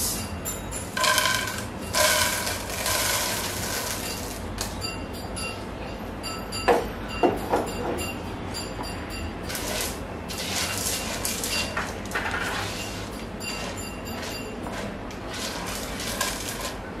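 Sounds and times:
popcorn rattling into metal pan: 0:01.0 - 0:04.4, 0:09.5 - 0:13.2, 0:15.2 - 0:16.8.

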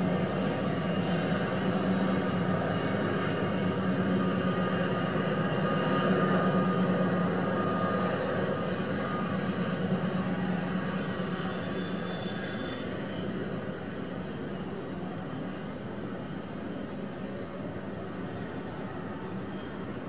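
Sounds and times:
high-pitched wheel squeal: 0:06.4 - 0:14.4, 0:18.2 - 0:20.0.

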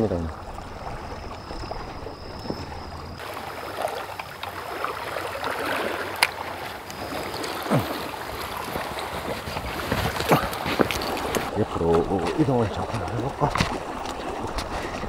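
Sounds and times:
wind on microphone: 0:00.0 - 0:03.6
waves washing against rocks: 0:00.0 - 0:15.0.

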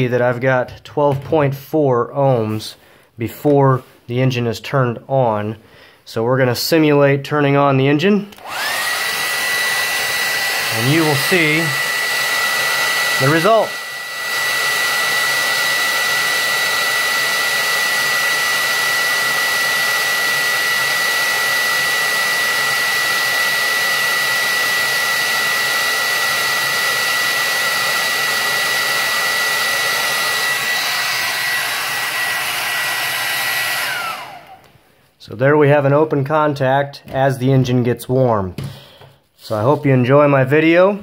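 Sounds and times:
hair dryer running: 0:08.3 - 0:34.9.

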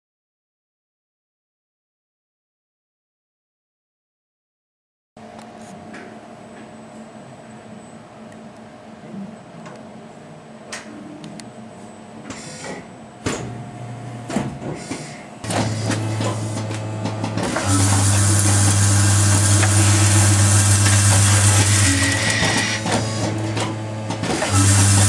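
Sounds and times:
bowl feeder buzzing hum: 0:15.4 - 0:25.0
machinery clicks: 0:15.4 - 0:25.0.

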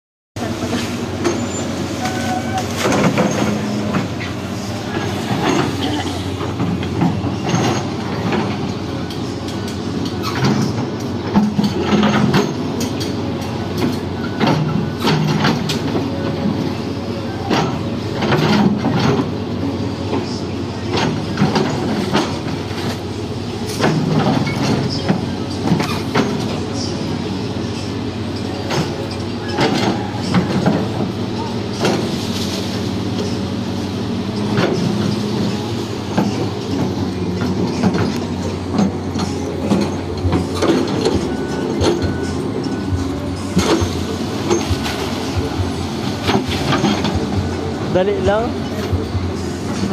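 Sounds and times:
diesel engine running: 0:00.4 - 0:49.9
metallic clanks and knocks: 0:00.8 - 0:16.0, 0:34.4 - 0:49.9.

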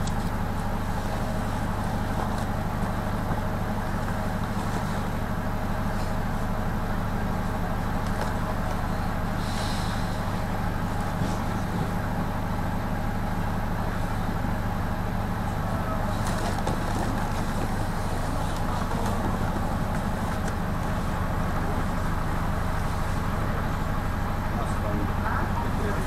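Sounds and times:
minibus engine idling: 0:00.0 - 0:26.0.

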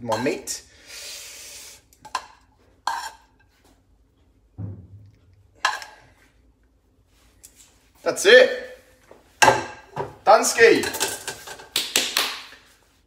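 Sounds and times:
pan and utensils clanking: 0:05.6 - 0:06.0, 0:09.4 - 0:11.7.

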